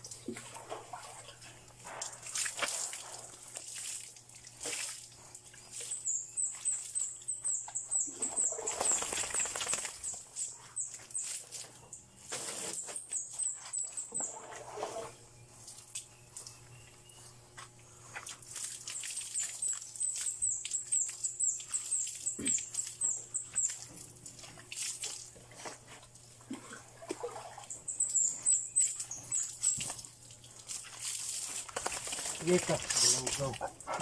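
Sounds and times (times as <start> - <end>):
water splashing over dog: 8.2 - 10.4, 28.9 - 34.0.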